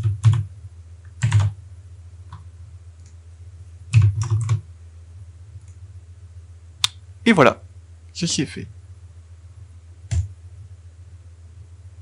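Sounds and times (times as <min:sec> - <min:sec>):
keyboard keystrokes: 0:01.2 - 0:01.6, 0:03.9 - 0:04.6, 0:10.1 - 0:10.3.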